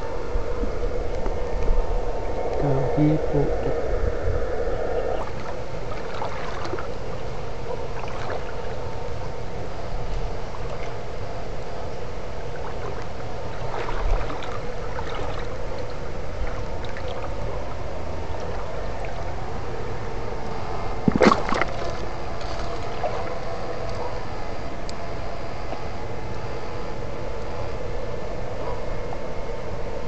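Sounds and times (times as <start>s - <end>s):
faint steady hum: 0.0s - 30.0s
creek water sloshing: 5.1s - 9.4s, 10.0s - 11.8s, 12.4s - 19.6s, 21.0s - 24.1s.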